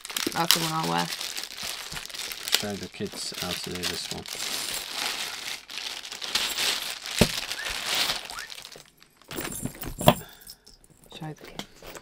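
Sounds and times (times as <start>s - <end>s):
bag rustling: 0.1s - 10.2s
metal chain clinking: 8.7s - 11.2s.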